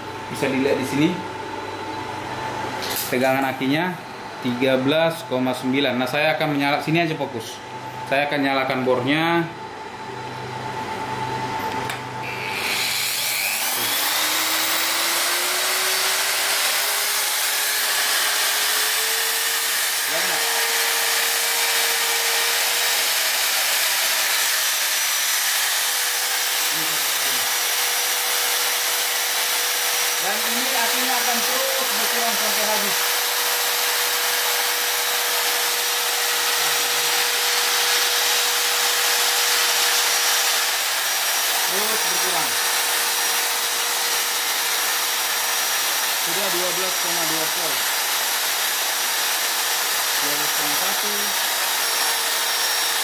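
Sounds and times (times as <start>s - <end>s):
electric drill motor whine: 12.2s - 53.0s.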